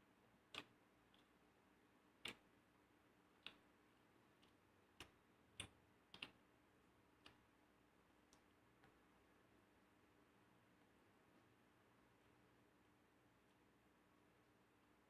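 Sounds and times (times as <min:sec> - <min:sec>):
faint clicks and taps of eating: 0:00.5 - 0:01.4, 0:02.2 - 0:02.5, 0:03.3 - 0:03.7, 0:04.3 - 0:06.4, 0:07.2 - 0:07.5, 0:08.2 - 0:09.0.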